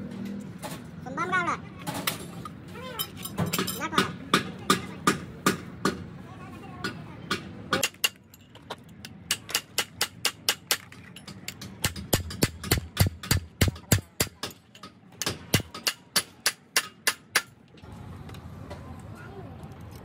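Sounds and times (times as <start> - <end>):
hammer tapping on metal: 9.2 - 17.6.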